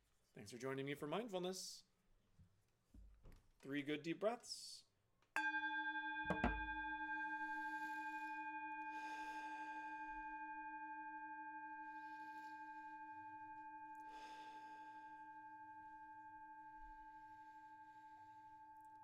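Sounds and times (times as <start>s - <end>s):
singing bowl ringing: 5.4s - 19.0s
slow deep breaths: 7.3s - 10.5s, 11.8s - 15.8s, 17.2s - 18.9s.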